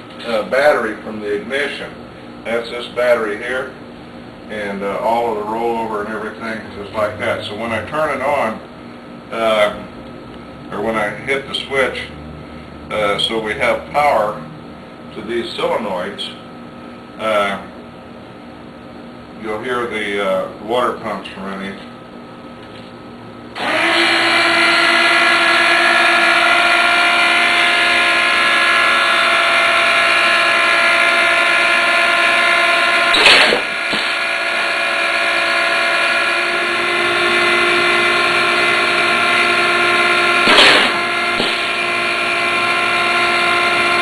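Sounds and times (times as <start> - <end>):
electric water pumps whining: 23.5 - 44.0.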